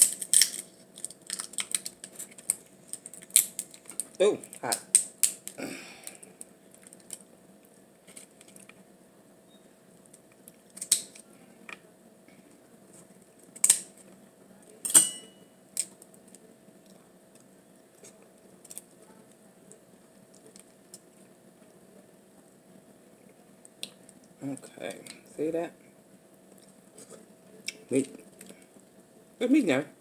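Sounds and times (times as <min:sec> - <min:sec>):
lobster shell cracking: 0:00.0 - 0:07.3, 0:08.0 - 0:08.8, 0:10.0 - 0:11.8, 0:13.4 - 0:14.0, 0:15.7 - 0:19.0, 0:20.3 - 0:21.1
faint steady hum: 0:00.0 - 0:30.0.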